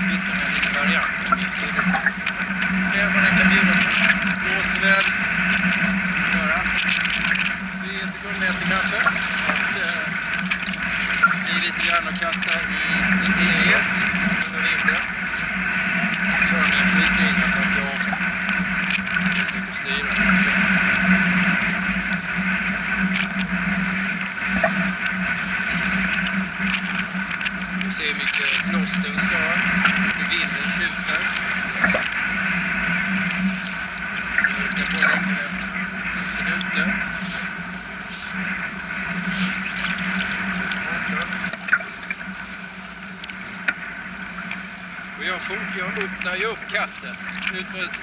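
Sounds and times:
low hum: 0:00.0 - 0:48.0
sea waves washing on shore: 0:00.0 - 0:48.0
wind: 0:00.0 - 0:48.0
faint clicks: 0:08.5 - 0:11.4, 0:45.9 - 0:48.0.

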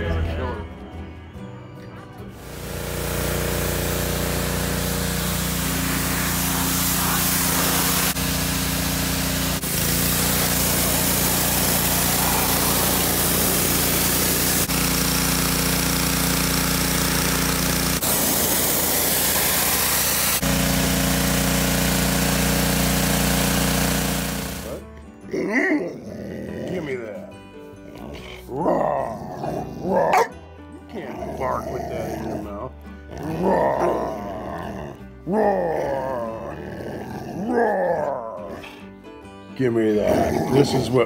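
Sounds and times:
pressure washer spray hissing: 0:02.4 - 0:24.8.

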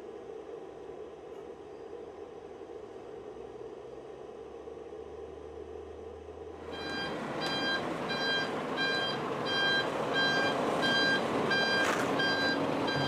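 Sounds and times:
low vehicle noise: 0:00.0 - 0:13.0
truck reversing alarm beeping: 0:06.6 - 0:13.0.

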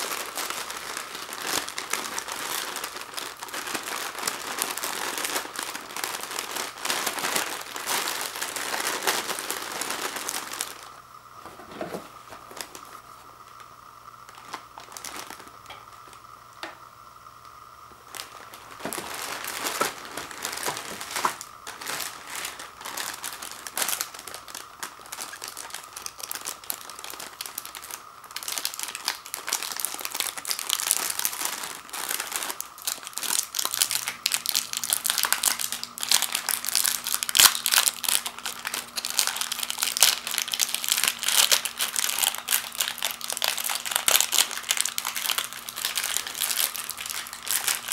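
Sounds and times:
plastic wrappers crinkling: 0:00.0 - 0:16.3, 0:17.9 - 0:47.9.

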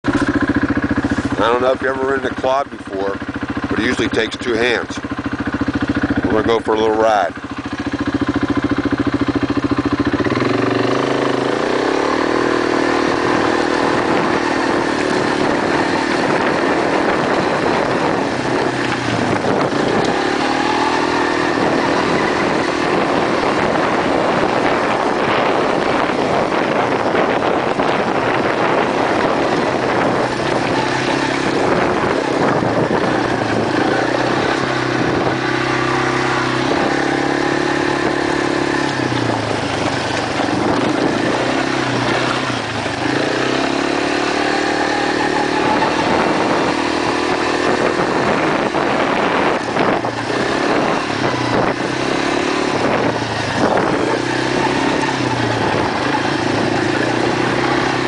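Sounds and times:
quad engine revving: 0:00.0 - 0:58.0.

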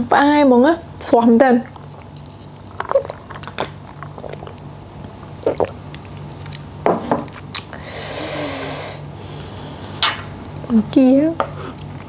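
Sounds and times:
steady low hum: 0:00.0 - 0:12.0
wet squishes of food: 0:01.6 - 0:06.7
loud hissing suck: 0:07.8 - 0:10.0.

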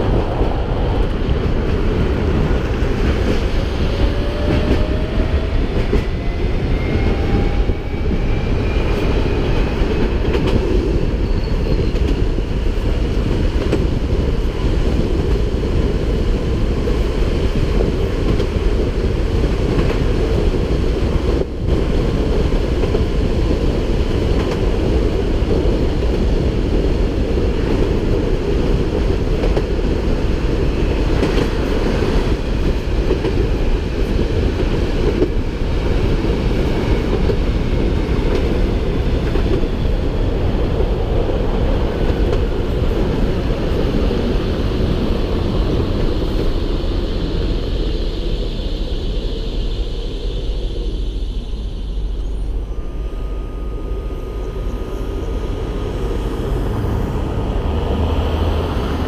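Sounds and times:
tram rumbling on rails: 0:00.0 - 0:59.0
thin steady whine: 0:46.9 - 0:57.6.

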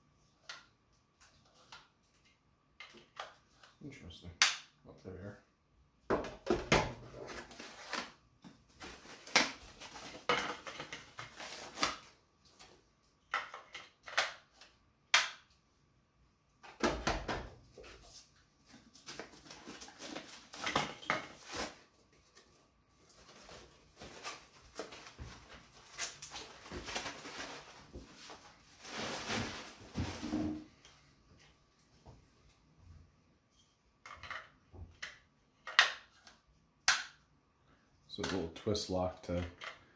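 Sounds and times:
plastic packaging rustling: 0:07.1 - 0:12.7, 0:18.1 - 0:30.7.

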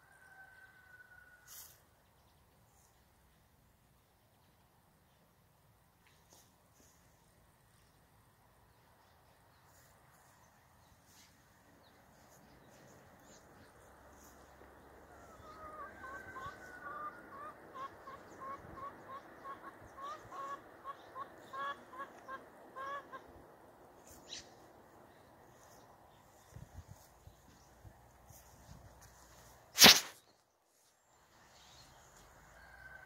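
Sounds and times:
chicken clucking: 0:14.2 - 0:23.3.

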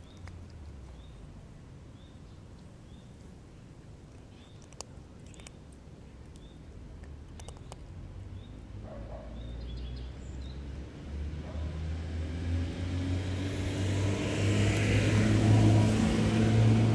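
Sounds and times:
vehicle engine hum: 0:07.2 - 0:16.9.

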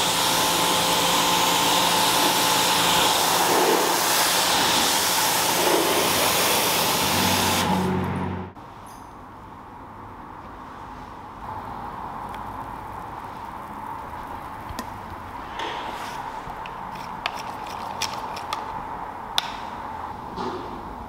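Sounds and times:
rod stirring water: 0:16.1 - 0:18.7
rod clicking against cup: 0:16.6 - 0:18.7.

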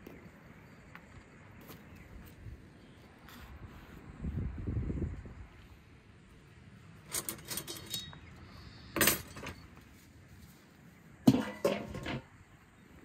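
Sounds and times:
metal utensils clinking and clanking: 0:07.1 - 0:08.2, 0:09.0 - 0:09.6, 0:11.3 - 0:12.2.

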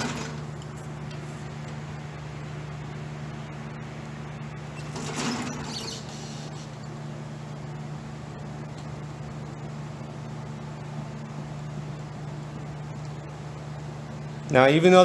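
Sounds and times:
steady low hum: 0:00.0 - 0:15.0
squeaky metal scraping: 0:04.8 - 0:06.6.

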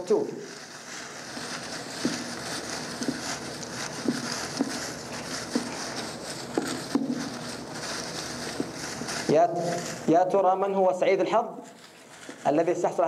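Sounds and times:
paper slips rustling: 0:00.5 - 0:10.4.

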